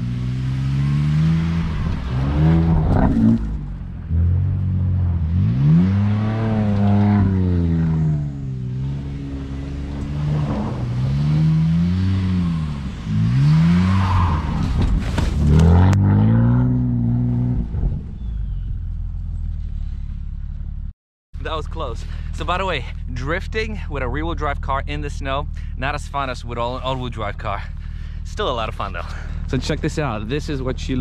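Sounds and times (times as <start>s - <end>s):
car engine revving: 0.0s - 20.0s.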